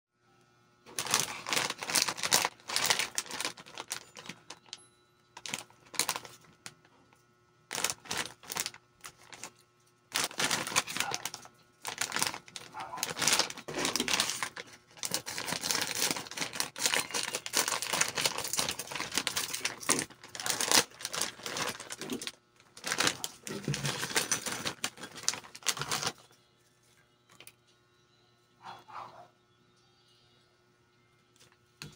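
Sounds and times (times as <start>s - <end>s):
plastic bag crinkling: 0.9s - 4.8s, 5.4s - 7.0s, 7.7s - 26.3s.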